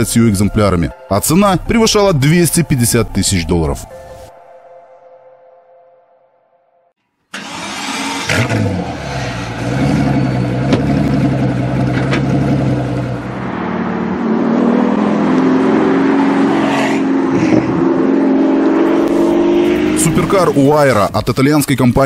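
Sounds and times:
car engine revving and idling: 7.4 - 20.8.

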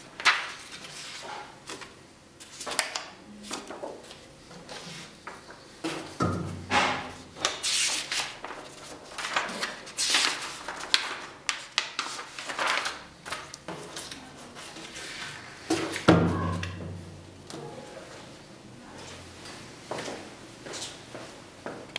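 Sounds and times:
paper pages rustling: 7.4 - 16.1
plastic packaging rustling: 7.7 - 15.1.

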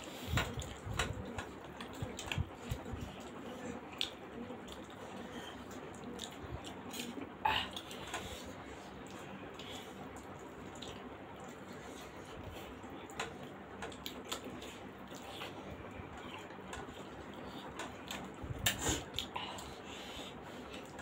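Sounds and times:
chewing: 0.0 - 21.0.

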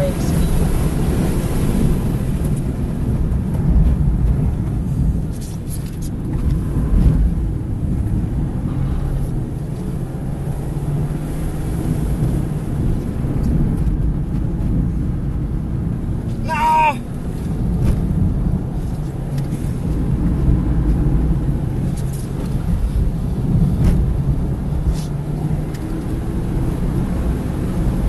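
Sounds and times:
car engine running hard: 0.0 - 28.0
road and wind noise: 0.0 - 28.0.

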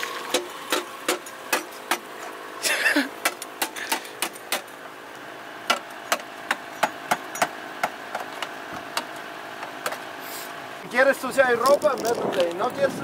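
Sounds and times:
hatchet hammering on metal: 0.3 - 2.1, 3.2 - 4.7, 5.7 - 8.3.

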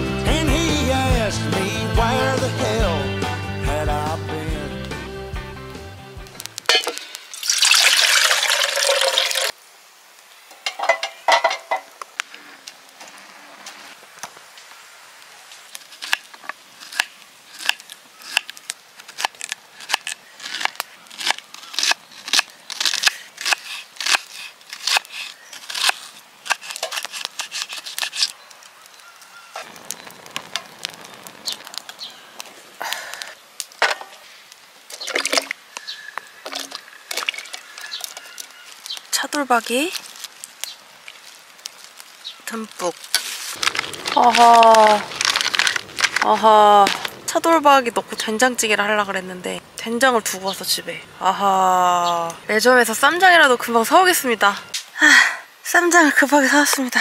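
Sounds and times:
water pouring into metal tin: 6.8 - 9.5, 34.9 - 35.6.

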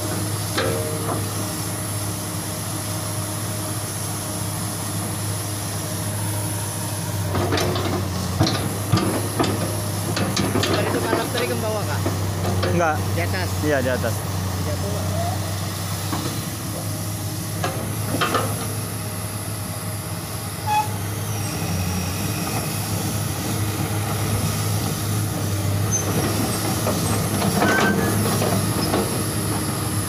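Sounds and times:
diesel engine running: 0.0 - 30.0
steel tracks squealing and clanking: 7.5 - 13.3, 20.6 - 23.0, 25.6 - 30.0.

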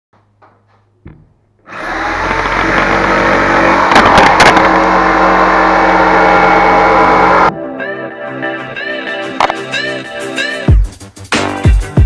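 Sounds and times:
jigsaw cutting plywood: 1.7 - 7.5.

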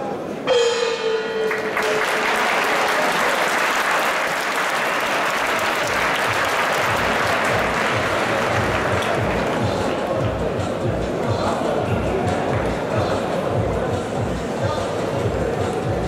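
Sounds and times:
ring bell ringing: 0.5 - 2.3
crowd applauding and cheering: 1.4 - 10.5.

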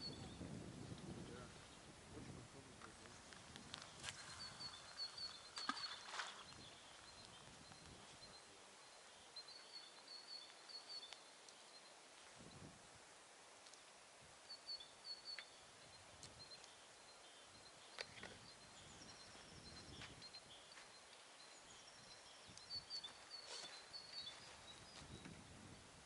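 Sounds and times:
bird chirping: 3.0 - 12.7, 14.5 - 25.4
soft clicks: 13.6 - 14.0, 22.5 - 22.7.

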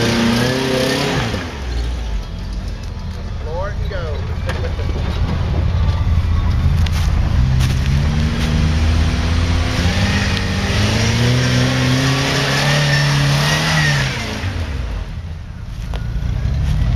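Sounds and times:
engine revving hard: 0.0 - 1.7, 7.4 - 15.2
tyres churning through mud: 0.0 - 2.5, 3.2 - 15.2.

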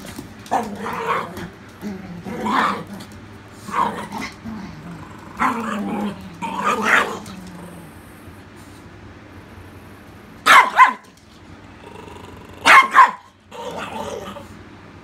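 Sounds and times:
puppy barking: 10.4 - 11.1, 12.6 - 14.3.

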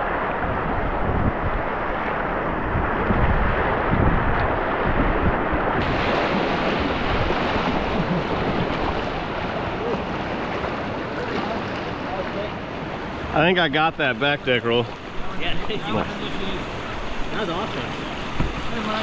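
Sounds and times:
wind buffeting microphone: 0.0 - 12.0
rushing whitewater: 0.0 - 19.0.

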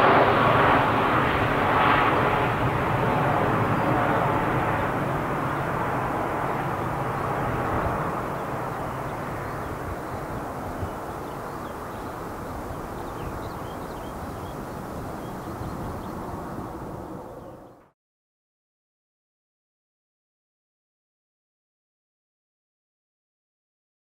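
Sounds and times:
jet engine rumble: 0.0 - 17.8.

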